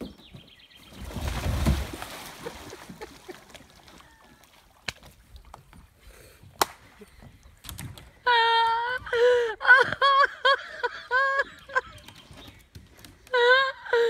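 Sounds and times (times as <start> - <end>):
kayak capsizing splash: 0.9 - 5.4.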